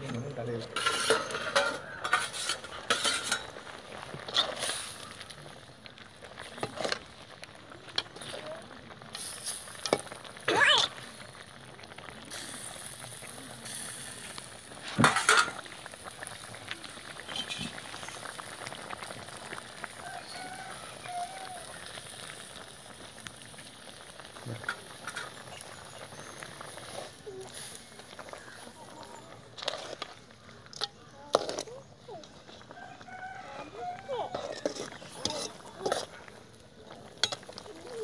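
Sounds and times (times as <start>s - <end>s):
curry bubbling in a pot: 0.3s - 38.0s
metal ladle scraping a pot: 0.6s - 5.1s, 14.3s - 15.7s, 24.6s - 25.5s, 28.2s - 31.8s, 34.2s - 37.7s.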